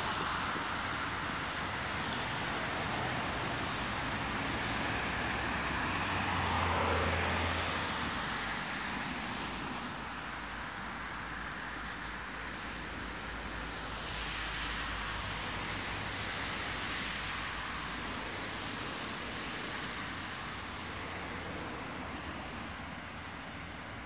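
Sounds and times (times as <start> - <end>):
car tyres hissing on road: 13.4 - 23.6.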